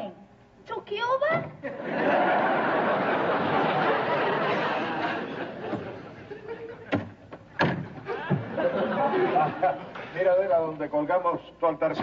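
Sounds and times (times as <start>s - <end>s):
studio audience laughing: 1.6s - 6.9s, 8.0s - 10.2s
sharp knocks: 6.9s - 8.5s.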